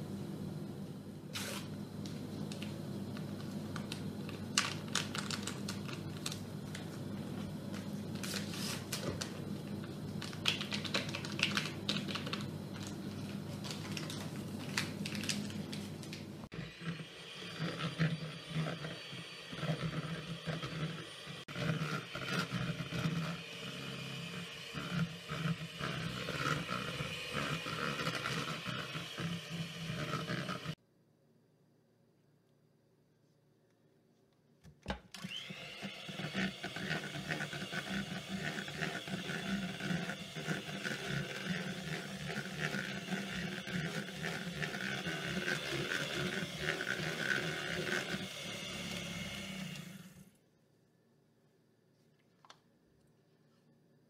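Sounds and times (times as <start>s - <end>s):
steady low hum: 0.0s - 34.4s
electric hand mixer running: 1.4s - 30.8s, 35.2s - 50.4s
wrapper crinkling and tearing: 3.7s - 6.8s, 10.2s - 16.2s.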